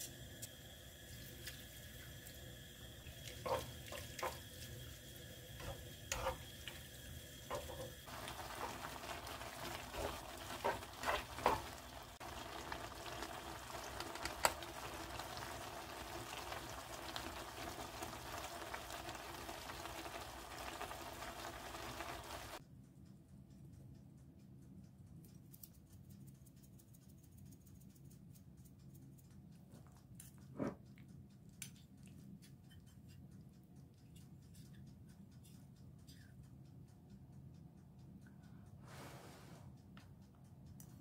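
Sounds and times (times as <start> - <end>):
sauce bubbling in frying pan: 0.1 - 22.6
tongs clicking against pan: 5.6 - 6.8, 7.5 - 15.3, 30.0 - 37.3.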